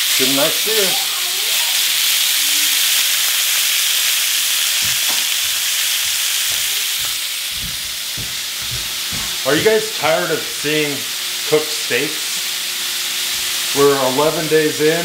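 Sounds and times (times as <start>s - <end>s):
steaks sizzling in a pan: 0.0s - 15.0s
soft low thumps: 7.5s - 9.8s.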